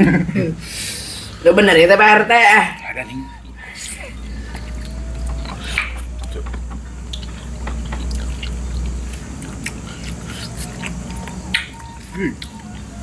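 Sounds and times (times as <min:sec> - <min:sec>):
person chewing with wet smacks: 0:03.4 - 0:13.0.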